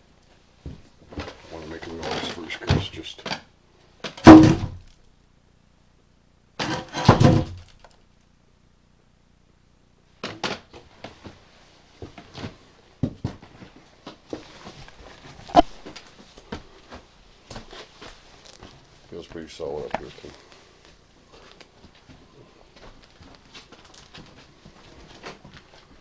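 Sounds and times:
loud thump: 4.2s - 4.8s, 7.0s - 7.6s.

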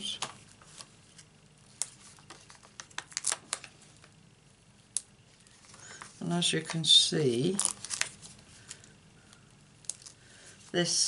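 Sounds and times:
paper ticks and rustles: 0.2s - 4.1s, 7.6s - 8.9s.

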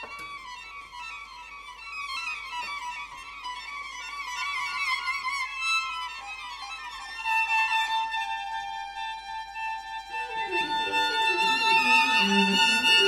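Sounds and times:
high bowed string tones: 0.0s - 13.0s
low cello notes: 8.1s - 13.0s.

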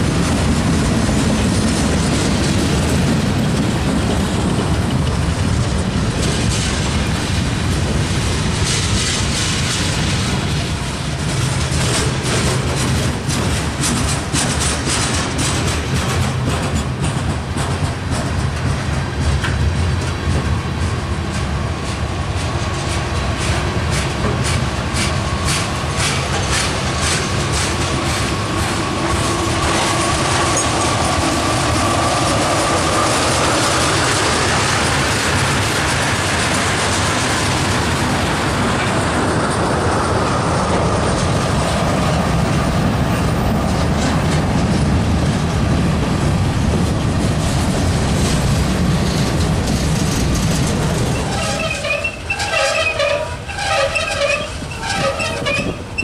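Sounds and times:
train wheels clacking over rail joints: 0.0s - 56.0s
wheel squeal: 51.0s - 56.0s.

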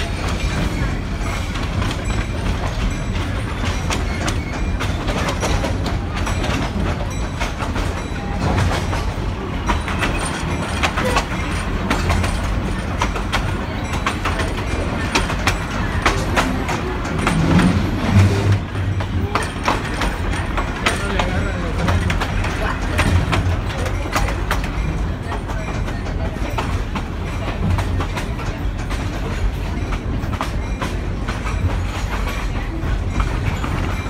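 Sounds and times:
clanks and clicks from cars: 0.0s - 34.0s
train wheels rumbling on rails: 0.0s - 34.0s.

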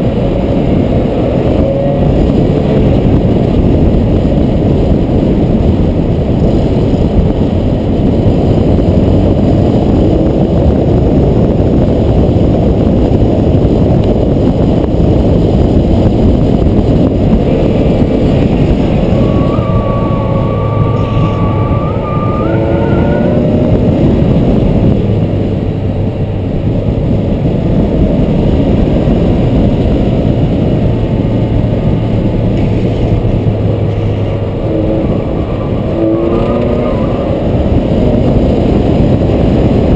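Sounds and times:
low engine hum: 0.0s - 39.9s
road noise: 0.0s - 39.9s
wind rush: 0.0s - 39.9s
wheels squealing: 17.0s - 24.8s, 33.1s - 39.4s.

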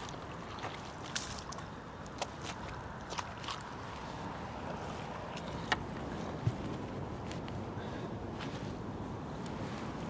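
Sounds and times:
wind and water noise: 0.0s - 10.0s.

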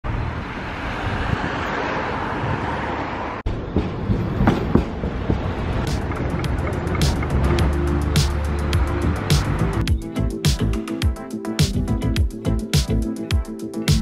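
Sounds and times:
tram rumbling on rails: 0.0s - 10.8s
street noise: 0.0s - 14.0s
music with ticking hi-hat: 5.9s - 14.0s.

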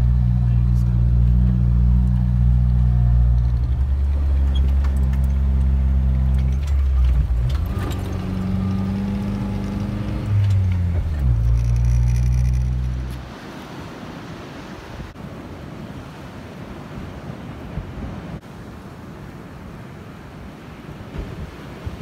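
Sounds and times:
car engine running from inside: 0.0s - 13.2s.

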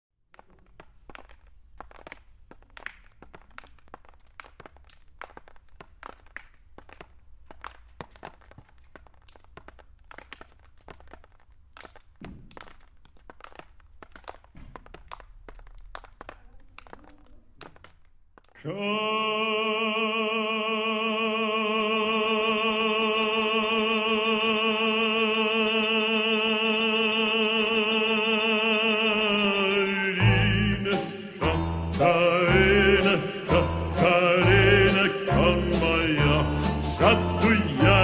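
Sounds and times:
irregular crackling and clicking: 0.3s - 18.6s.

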